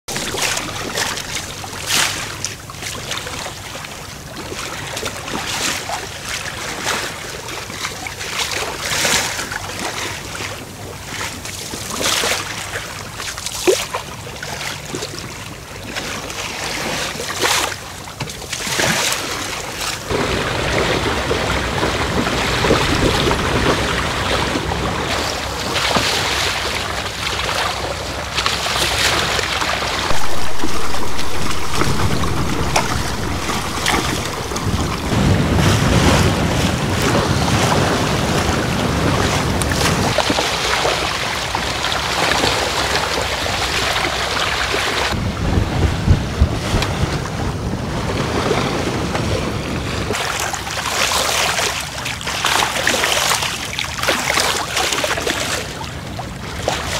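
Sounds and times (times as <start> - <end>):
water splashing along boat hull: 0.1 - 6.0, 16.8 - 43.2
wind on microphone: 30.0 - 40.2, 45.2 - 50.2.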